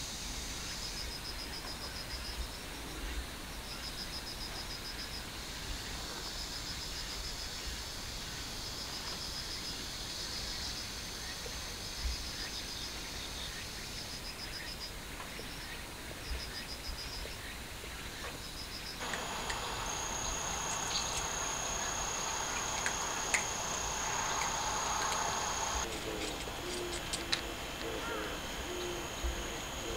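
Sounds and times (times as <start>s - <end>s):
crickets chirping: 0.0s - 29.9s
faint clicks: 19.0s - 27.9s
high-pitched insect drone: 19.0s - 29.9s.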